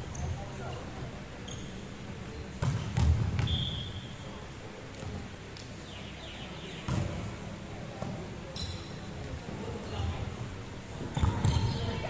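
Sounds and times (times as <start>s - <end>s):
sneaker squeak on wooden floor: 1.5s - 1.8s, 8.6s - 9.0s, 11.2s - 11.9s.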